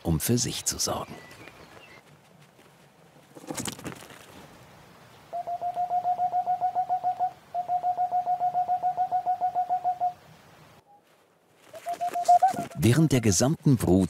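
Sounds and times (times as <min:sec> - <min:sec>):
owl hooting: 0:05.3 - 0:10.2, 0:11.7 - 0:12.9.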